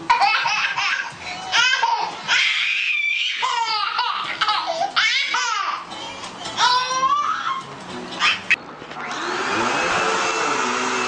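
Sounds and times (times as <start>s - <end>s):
baby laughing: 0.0s - 8.6s
baby squealing: 0.1s - 5.8s, 6.6s - 8.5s.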